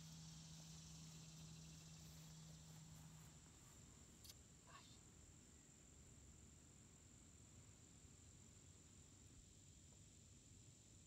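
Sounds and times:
insects chirping: 0:00.0 - 0:05.0
faint low hum: 0:00.0 - 0:11.0.

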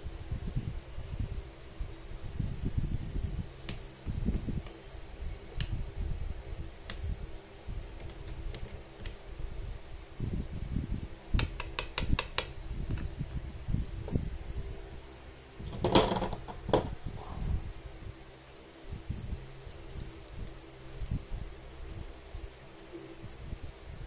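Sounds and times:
low uneven rumble: 0:12.5 - 0:24.0.

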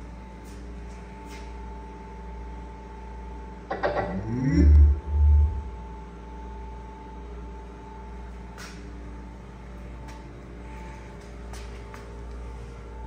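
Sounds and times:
steady low hum: 0:00.0 - 0:13.0
deep bass boom: 0:03.7 - 0:05.8
speaker power-on sound: 0:03.7 - 0:05.9.

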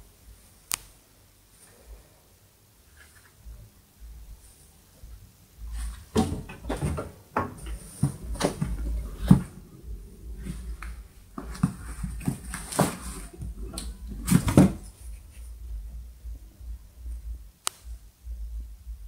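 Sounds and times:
monkey rustling on cardboard box: 0:10.3 - 0:15.6.

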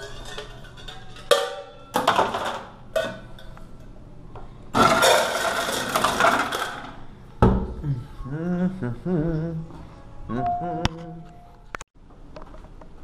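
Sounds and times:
ice cubes rattling into metal bucket: 0:04.8 - 0:07.0.

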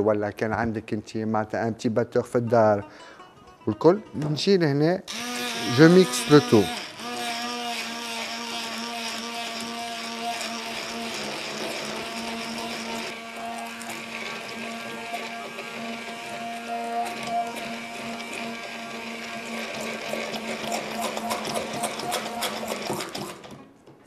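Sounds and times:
stick blender motor hum: 0:05.1 - 0:23.6.

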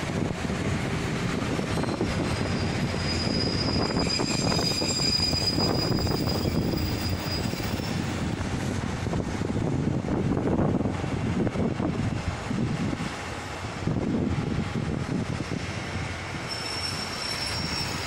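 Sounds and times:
train rumbling on rails: 0:00.0 - 0:18.0
high wheel squeal: 0:01.4 - 0:08.3, 0:16.2 - 0:18.0.

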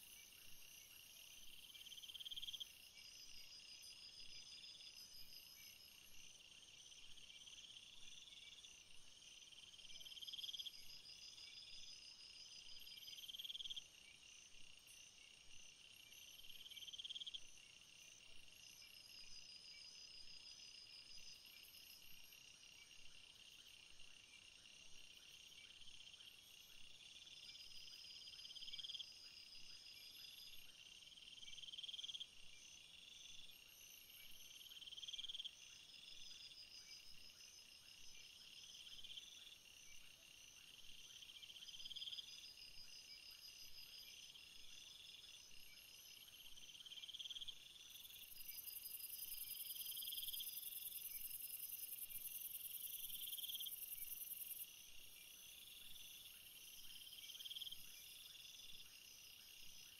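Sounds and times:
crickets and insects trilling: 0:41.3 - 0:59.9.

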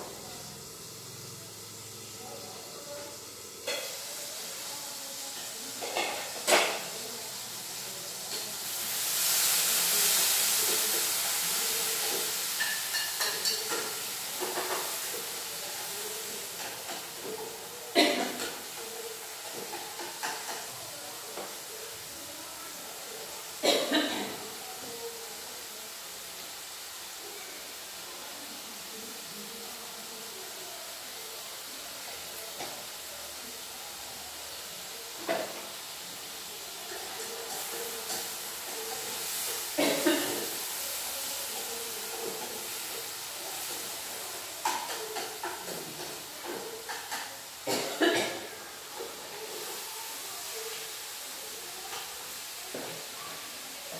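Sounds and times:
food sizzling in a pan: 0:00.0 - 0:53.9
cookware and utensils clattering: 0:01.8 - 0:22.1, 0:23.5 - 0:24.8, 0:35.1 - 0:49.8
utensils clinking against pan: 0:03.6 - 0:04.2, 0:11.8 - 0:15.4, 0:16.3 - 0:20.8.

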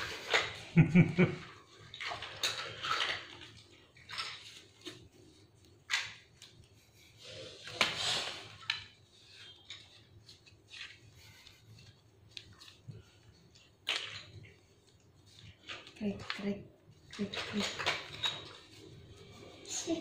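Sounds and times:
playing cards shuffling: 0:07.4 - 0:16.4.

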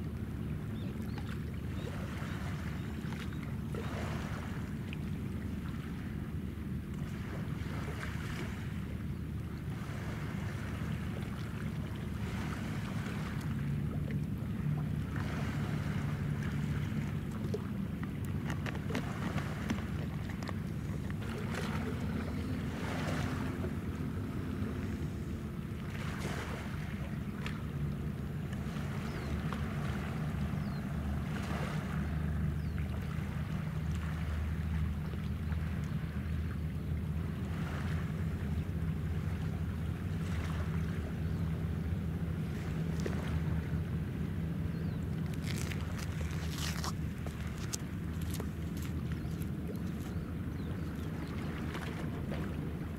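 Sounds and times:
light wind: 0:00.0 - 0:52.9
ship machinery drone: 0:00.0 - 0:52.9
water noise: 0:00.0 - 0:52.9
water washing: 0:45.1 - 0:50.1.

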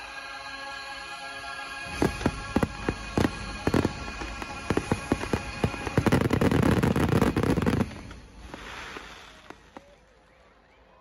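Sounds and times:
fireworks bangs: 0:01.9 - 0:10.1.

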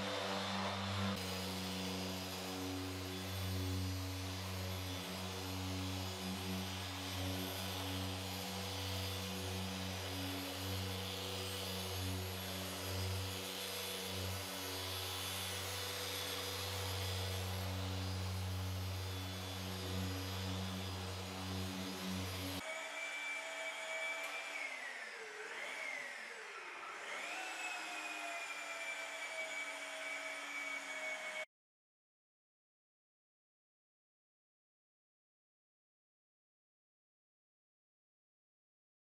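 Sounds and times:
car polisher motor humming: 0:00.0 - 0:22.7.

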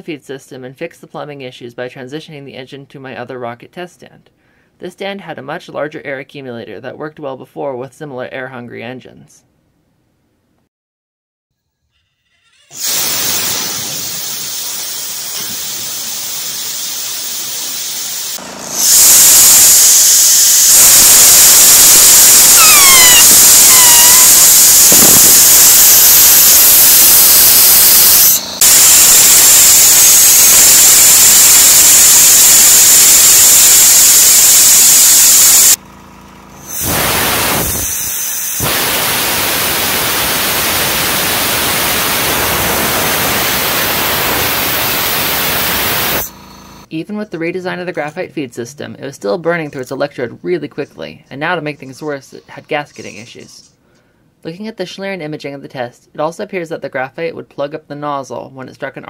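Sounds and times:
short falling squeals: 0:11.6 - 0:14.9, 0:18.8 - 0:35.8
compressed air hissing through nozzle: 0:12.8 - 0:35.8, 0:36.6 - 0:46.4.

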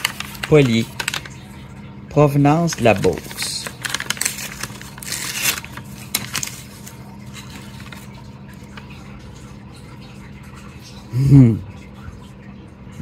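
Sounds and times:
objects scraping and rustling: 0:02.7 - 0:08.8.

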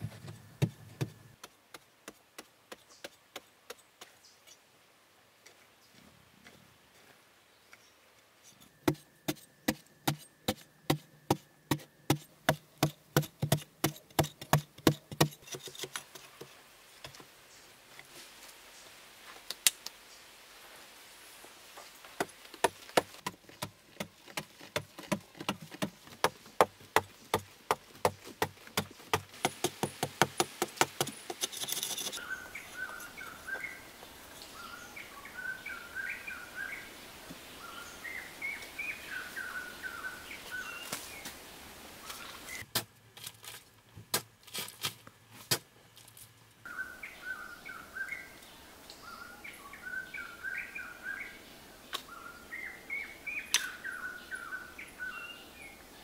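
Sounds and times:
digging tool chopping into clay: 0:08.9 - 0:16.0, 0:22.6 - 0:32.2
birds chirping: 0:29.7 - 0:41.4, 0:46.6 - 0:56.0.

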